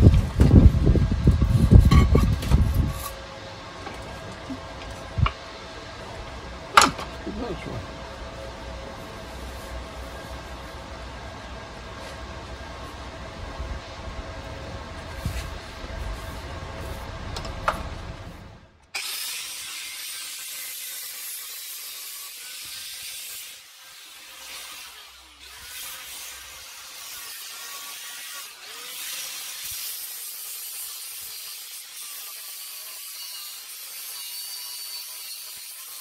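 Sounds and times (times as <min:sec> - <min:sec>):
angle grinder sanding steel: 0:19.0 - 0:36.0.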